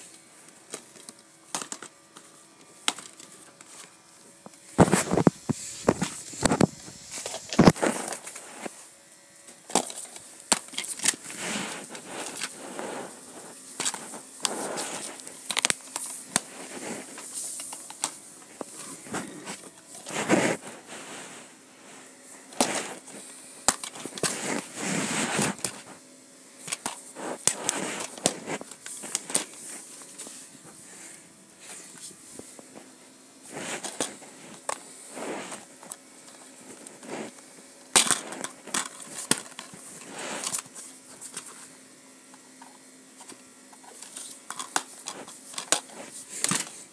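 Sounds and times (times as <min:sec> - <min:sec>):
rustling: 0:04.7 - 0:08.9, 0:09.7 - 0:26.0, 0:26.6 - 0:37.4, 0:38.0 - 0:41.7.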